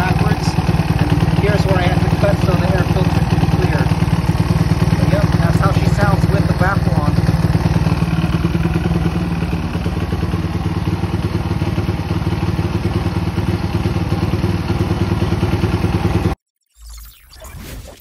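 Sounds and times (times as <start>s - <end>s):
mini motorcycle engine idling: 0.0s - 16.4s.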